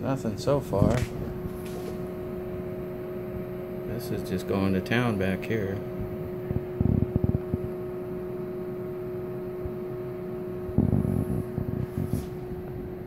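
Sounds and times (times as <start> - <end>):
cooling fan humming: 0.0 - 13.0.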